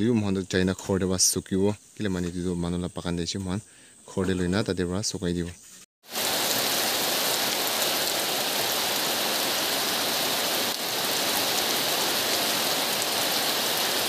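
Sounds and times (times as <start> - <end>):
heavy rain on metal roof: 6.0 - 14.0.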